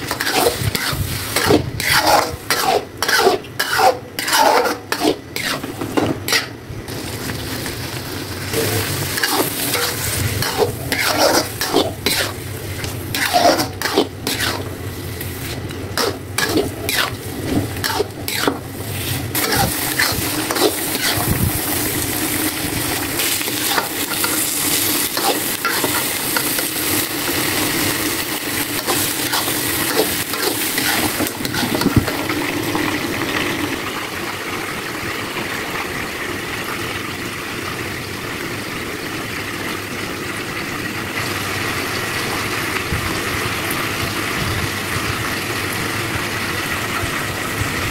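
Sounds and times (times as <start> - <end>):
spatula scraping a wok: 0.0 - 7.3, 8.3 - 22.6, 23.2 - 32.2
sizzling frying: 0.0 - 47.9.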